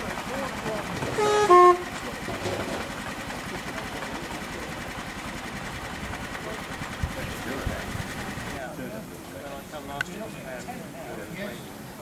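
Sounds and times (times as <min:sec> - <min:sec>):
small locomotive engine running: 0:00.0 - 0:09.6
two-tone locomotive horn: 0:01.1 - 0:02.0.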